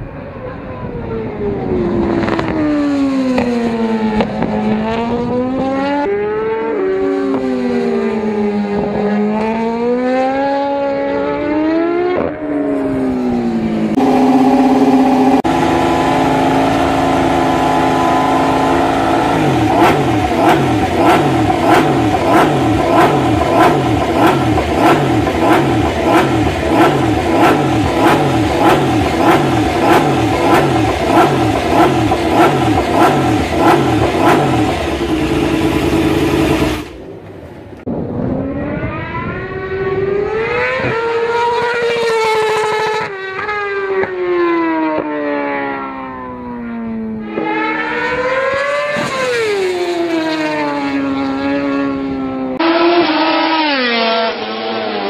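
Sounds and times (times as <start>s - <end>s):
racing motorcycle engine revving: 1.2s - 37.2s, 37.9s - 55.0s
motorcycle engine revving on stands: 1.7s - 37.1s, 47.2s - 55.0s.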